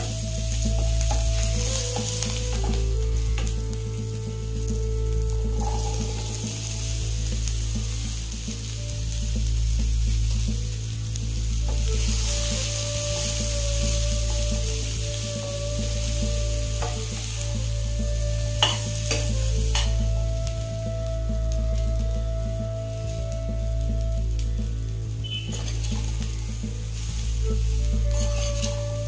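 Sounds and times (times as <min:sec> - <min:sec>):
chickpeas sizzling in oil: 0:00.0 - 0:29.0.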